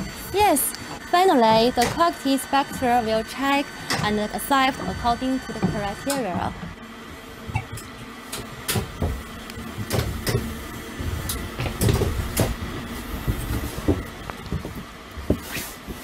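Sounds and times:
train cab low rumble: 0:08.9 - 0:15.1.

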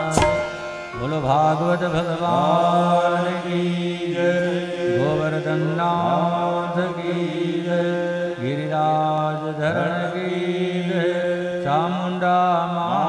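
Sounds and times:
held drone note: 0:00.0 - 0:06.4
person chanting: 0:00.0 - 0:13.0.

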